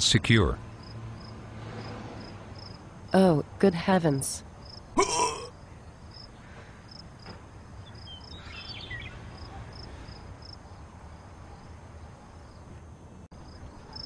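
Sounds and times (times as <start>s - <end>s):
crickets chirping: 0.4s - 3.7s, 4.4s - 14.0s
bird twitter: 7.8s - 9.2s.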